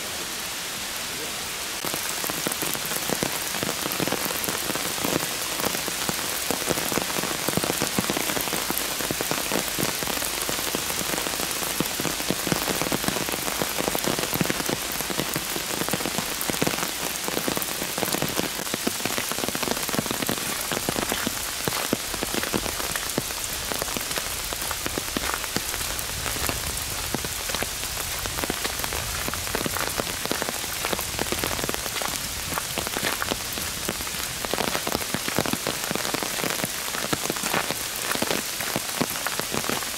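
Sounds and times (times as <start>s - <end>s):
steady rain: 0.0s - 39.9s
raindrops pattering close by: 1.8s - 39.9s.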